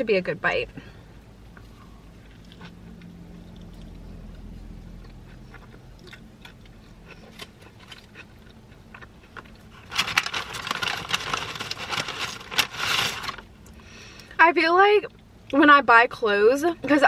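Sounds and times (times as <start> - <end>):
person chewing: 1.5 - 9.9
paper bag rustling: 9.7 - 13.5.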